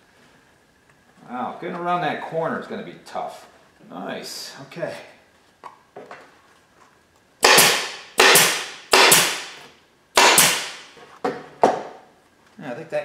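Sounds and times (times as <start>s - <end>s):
air stapler firing: 7.4s - 10.9s.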